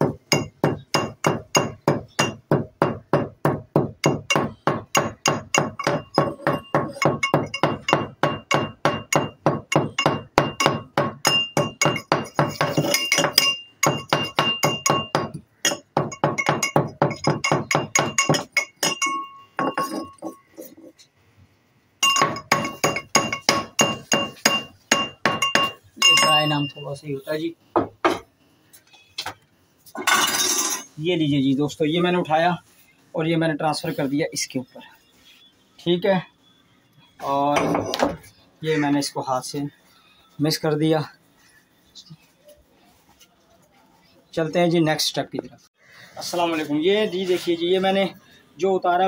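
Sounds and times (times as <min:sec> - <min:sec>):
metal pestle pounding in mortar: 0:00.0 - 0:20.3, 0:22.0 - 0:26.5.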